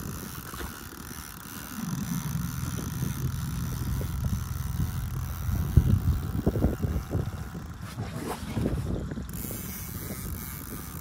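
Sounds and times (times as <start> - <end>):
boat motor humming: 0.0 - 11.0.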